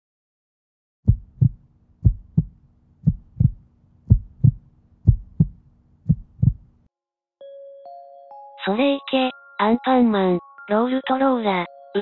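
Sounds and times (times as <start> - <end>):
heartbeat thumps: 1.1 - 6.8.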